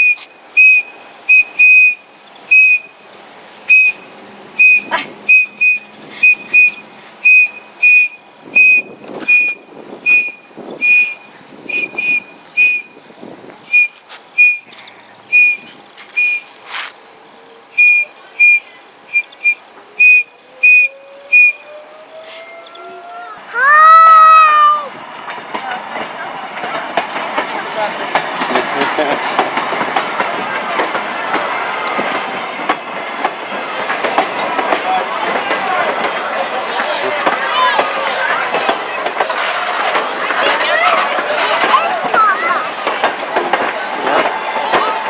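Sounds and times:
toy whistle toots: 0.0 - 2.9, 3.7 - 4.0, 4.6 - 12.9, 13.7 - 16.5, 17.8 - 23.0.

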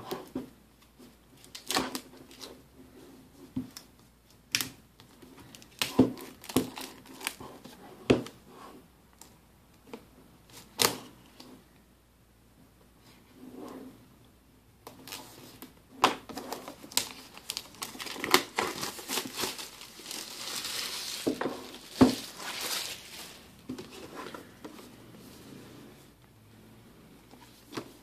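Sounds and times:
plastic shrink wrap crinkling: 16.4 - 23.6.

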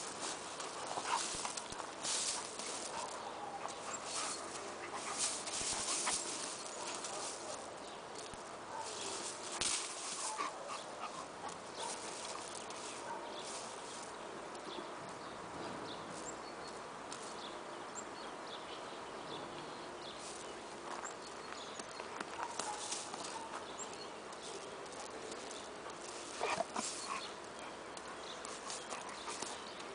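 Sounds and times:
dogs scuffling on gravel: 0.0 - 14.2, 20.1 - 29.9
dogs vocalizing: 22.4 - 29.9.

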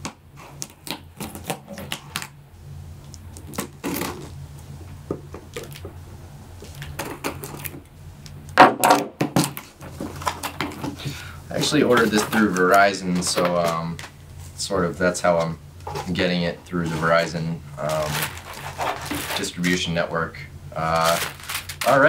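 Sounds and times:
knife slitting packing tape: 0.4 - 2.3, 3.4 - 4.3
tape tearing: 0.4 - 2.4, 3.4 - 4.3, 6.6 - 7.8, 17.8 - 19.8, 20.8 - 22.0
cardboard rustling: 9.4 - 14.2, 15.9 - 19.9, 20.8 - 22.0.

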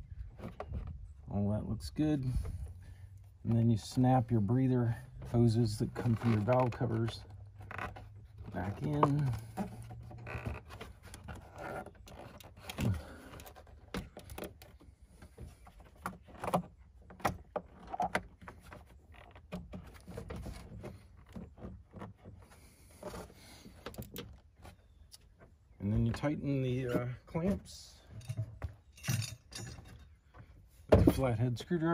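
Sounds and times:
plastic scraping and rubbing: 0.0 - 1.2, 5.1 - 26.2.

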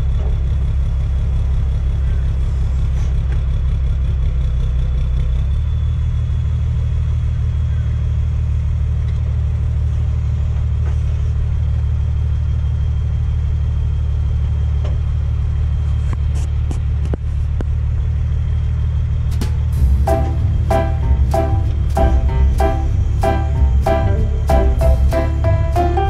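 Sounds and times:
diesel engine running: 0.0 - 26.0
music with a steady beat: 19.8 - 26.0.

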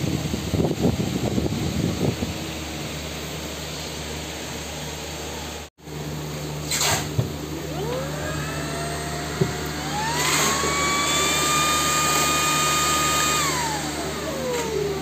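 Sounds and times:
vacuum cleaner motor whining: 7.3 - 15.0.

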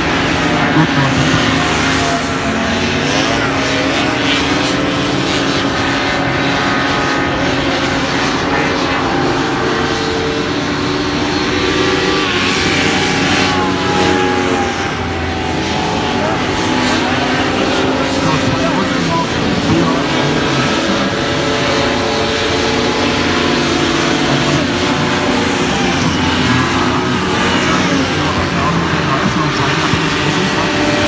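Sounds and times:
hovercraft engines droning: 0.0 - 31.0.

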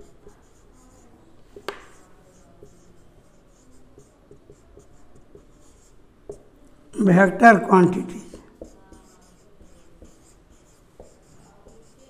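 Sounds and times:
marker tapping whiteboard: 0.0 - 6.5, 7.2 - 12.0
marker scratching on whiteboard: 0.0 - 12.0.

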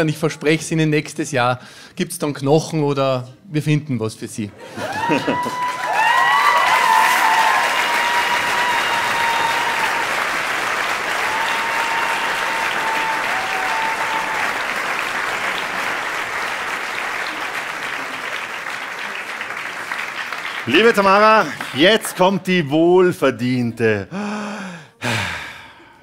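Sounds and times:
audience applauding: 4.7 - 22.4.

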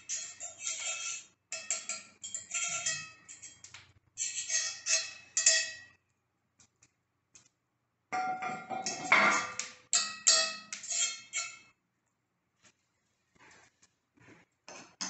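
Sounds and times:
metal utensil scraping skillet: 0.0 - 6.0, 8.3 - 11.7
cast-iron lid clattering: 8.2 - 10.5.

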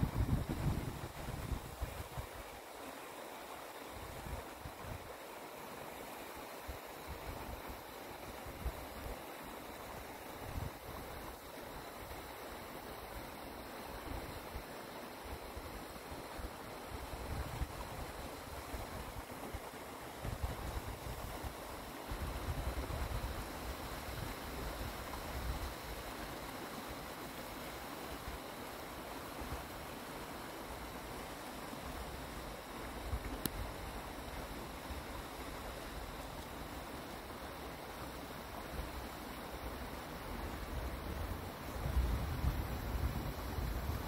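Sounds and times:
wind buffeting microphone: 0.0 - 2.0.

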